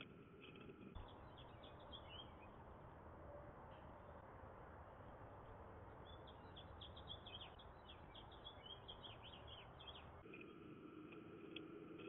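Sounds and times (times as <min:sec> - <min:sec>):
wren singing: 0:01.0 - 0:02.5, 0:06.0 - 0:10.3.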